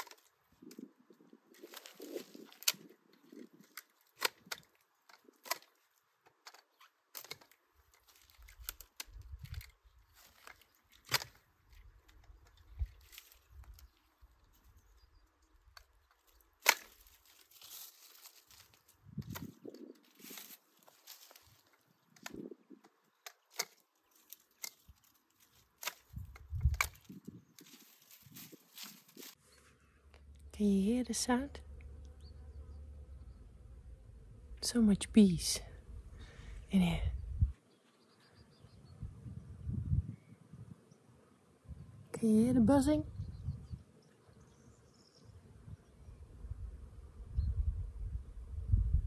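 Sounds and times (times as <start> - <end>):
loppers snipping branches: 0.0 - 0.9, 1.5 - 14.7, 15.5 - 29.4
leaves and twigs rustling: 0.0 - 30.3.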